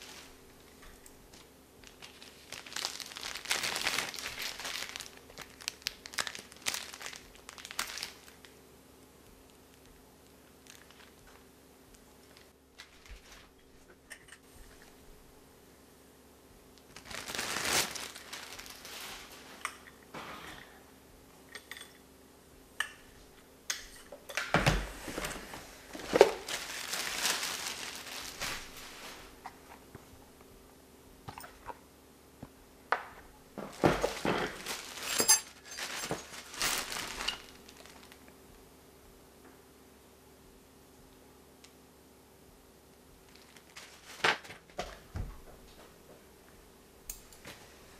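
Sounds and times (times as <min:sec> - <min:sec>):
plastic bag crinkling: 0:00.0 - 0:08.6, 0:09.5 - 0:11.5, 0:12.2 - 0:13.9, 0:16.8 - 0:19.6, 0:25.1 - 0:30.0, 0:33.6 - 0:38.3, 0:43.2 - 0:44.8.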